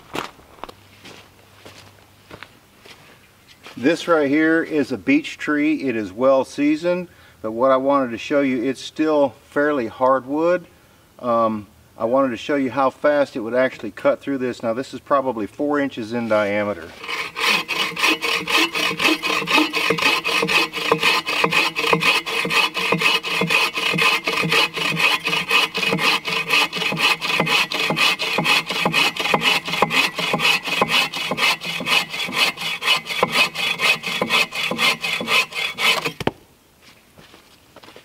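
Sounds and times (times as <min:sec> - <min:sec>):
bow saw cutting log: 0:16.8 - 0:36.3.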